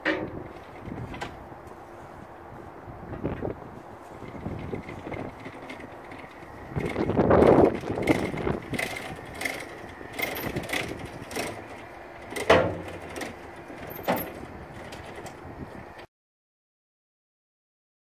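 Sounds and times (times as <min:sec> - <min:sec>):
metal clanks and knocks: 0:00.0 - 0:01.4, 0:04.2 - 0:15.4.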